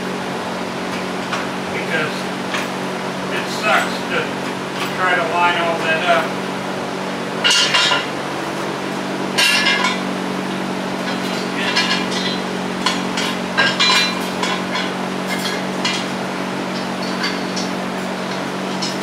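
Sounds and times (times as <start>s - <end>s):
steady low hum: 0.0s - 19.0s
metal tools clinking: 7.4s - 8.1s, 11.0s - 16.1s, 16.7s - 19.0s.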